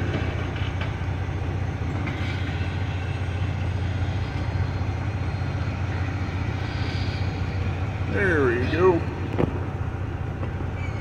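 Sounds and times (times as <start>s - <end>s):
diesel engine idling: 2.6s - 11.0s.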